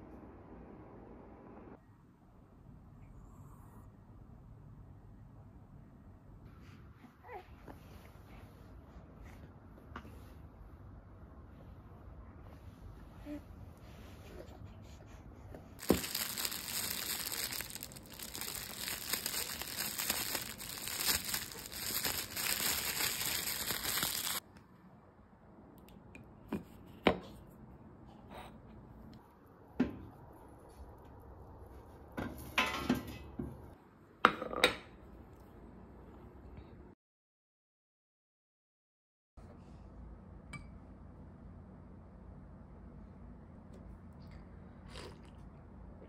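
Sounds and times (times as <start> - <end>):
plastic packaging crinkling: 15.8 - 24.4.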